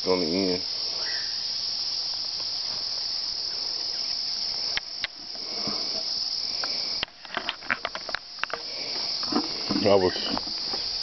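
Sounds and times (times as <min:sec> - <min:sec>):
insects droning: 0:00.0 - 0:11.0
sharp clicks and rustles: 0:04.8 - 0:10.9.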